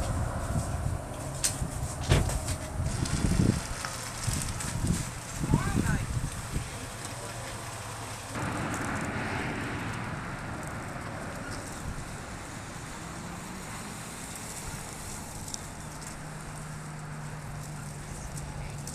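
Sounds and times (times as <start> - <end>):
rushing noise: 8.2 - 15.4.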